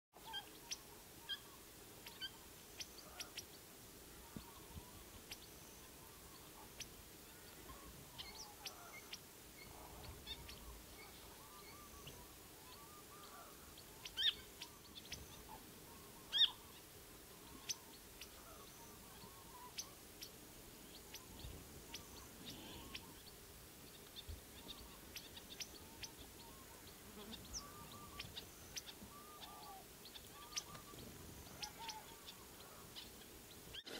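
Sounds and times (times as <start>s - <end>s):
faint warbling birdsong: 0.2s - 33.9s
finches chirping: 7.5s - 16.6s, 20.9s - 33.9s.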